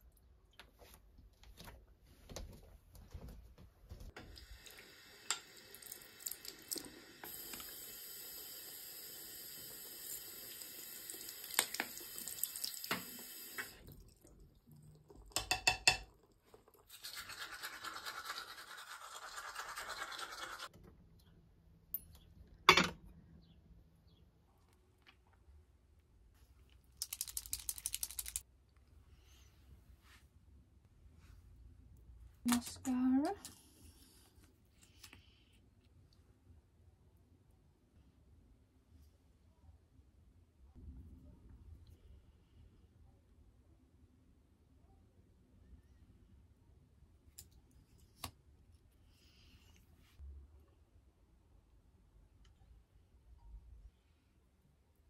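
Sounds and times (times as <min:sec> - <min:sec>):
toothbrush scrubbing: 0:16.9 - 0:20.7.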